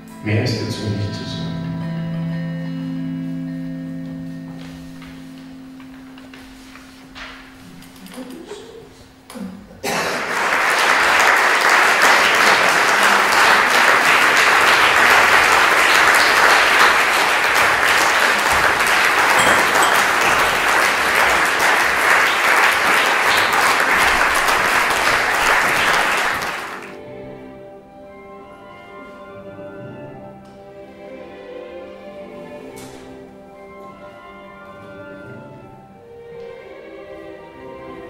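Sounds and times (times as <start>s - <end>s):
quiet music with held notes: 0.0s - 38.0s
audience applauding: 9.8s - 27.0s.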